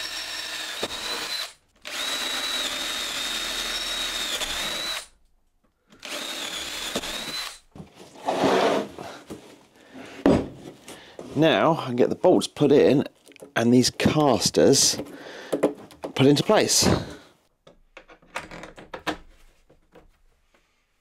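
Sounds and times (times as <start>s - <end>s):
power drill whining: 0.0s - 5.2s, 5.9s - 7.7s
wooden knock and scrape: 7.8s - 11.4s.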